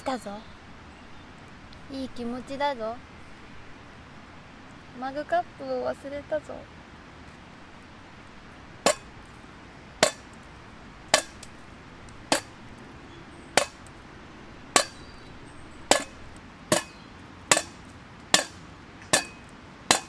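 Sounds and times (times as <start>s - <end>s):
wooden stick knocking: 8.8s - 9.1s, 10.0s - 10.3s, 11.1s - 11.5s, 13.6s - 13.9s, 14.8s - 15.0s, 15.9s - 20.0s.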